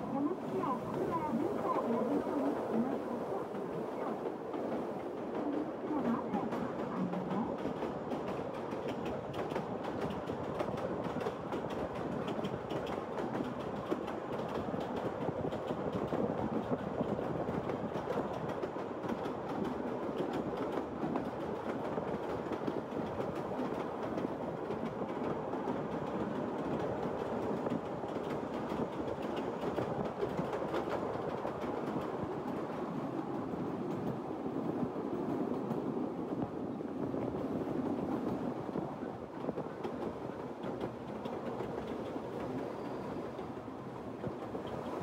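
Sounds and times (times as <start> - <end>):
train wheels rumbling on rails: 0.0 - 45.0
wheels clacking over rail joints: 2.8 - 32.9.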